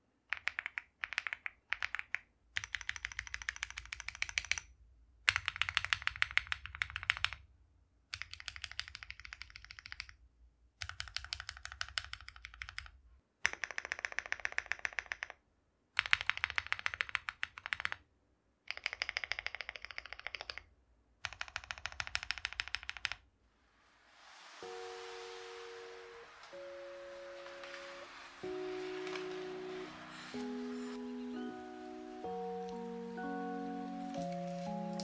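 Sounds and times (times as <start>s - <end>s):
fast typing on mechanical keyboard: 0.3s - 4.7s, 5.3s - 7.4s, 8.1s - 10.2s, 10.8s - 15.4s, 16.0s - 18.0s, 18.7s - 23.2s.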